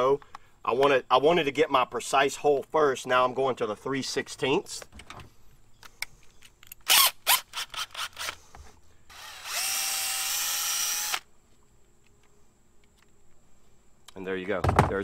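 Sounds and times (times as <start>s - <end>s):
cordless drill running: 9.1s - 11.3s.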